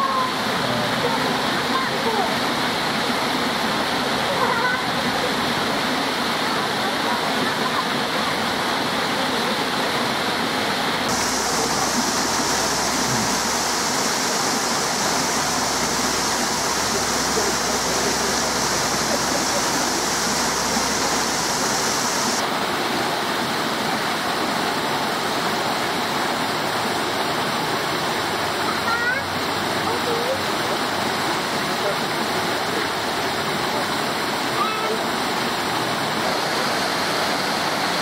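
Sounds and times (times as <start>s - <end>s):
rushing water: 0.0s - 38.0s
high hiss: 11.1s - 22.4s.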